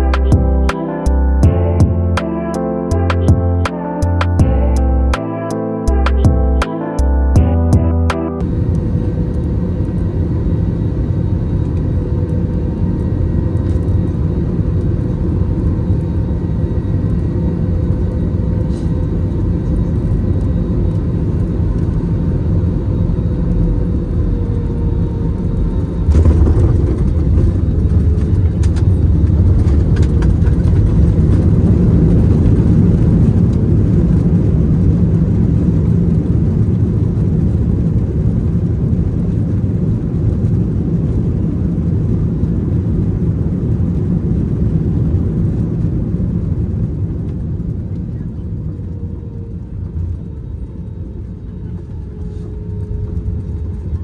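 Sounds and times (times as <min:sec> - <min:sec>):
jet engine and airflow rumble: 0:00.0 - 0:54.0
falling engine whine: 0:21.2 - 0:37.5.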